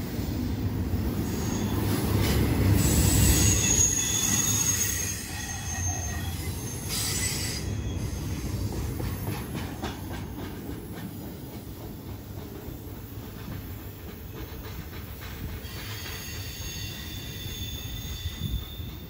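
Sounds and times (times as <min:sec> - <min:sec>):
freight train rumbling past: 0:00.0 - 0:19.0
train wheel clicks: 0:08.7 - 0:17.0.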